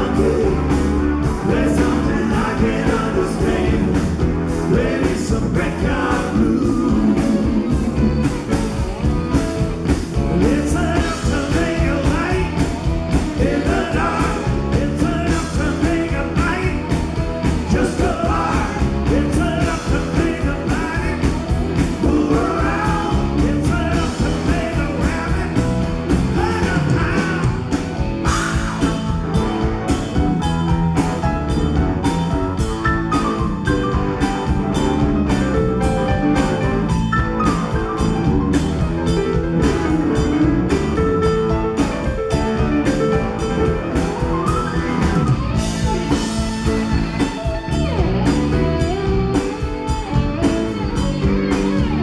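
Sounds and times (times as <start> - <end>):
drum kit beat: 0.0 - 52.0
live rock band playing: 0.0 - 52.0.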